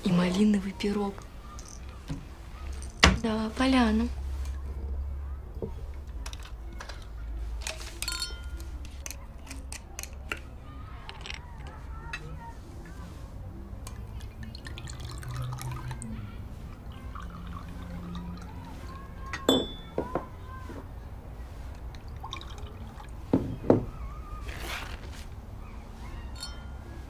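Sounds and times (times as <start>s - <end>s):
glass clinks: 8.0s - 8.6s, 19.4s - 20.1s, 26.4s - 26.8s
liquid pouring into glasses: 13.9s - 16.2s, 16.8s - 19.1s, 21.8s - 23.3s.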